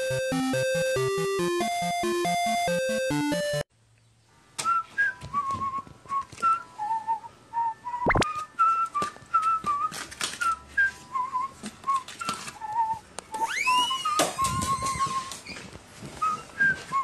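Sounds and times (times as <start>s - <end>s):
short whistled notes and trills: 6.5s - 8.9s.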